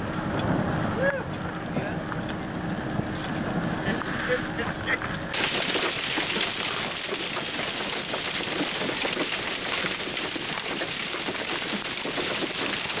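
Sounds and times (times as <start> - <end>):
rain patter: 5.3 - 13.0.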